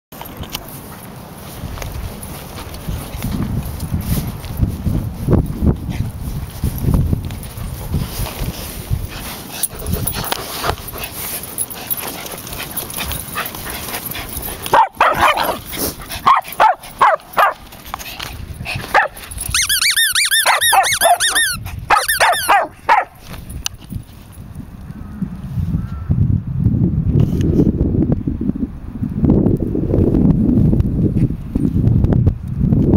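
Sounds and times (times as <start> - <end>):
dog yapping: 14.7 - 17.6, 18.9 - 23.2.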